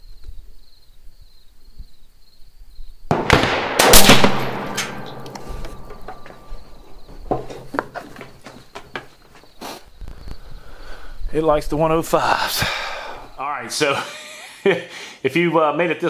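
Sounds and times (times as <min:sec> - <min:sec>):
rifle shots: 0:03.1 - 0:06.1.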